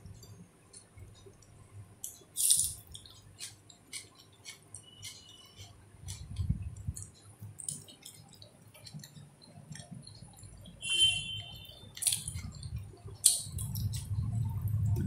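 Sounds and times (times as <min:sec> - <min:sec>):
wet mouth clicks chewing: 0:00.2 - 0:10.8.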